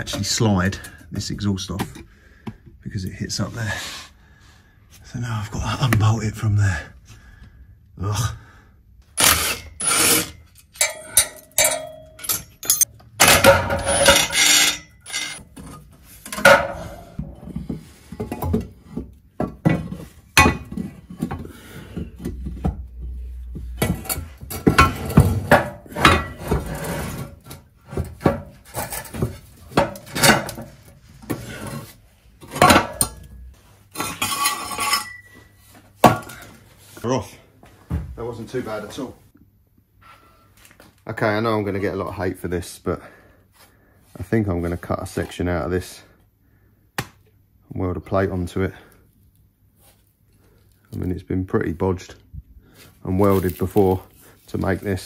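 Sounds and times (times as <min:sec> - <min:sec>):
metal clanks and scraping: 0:09.2 - 0:36.6.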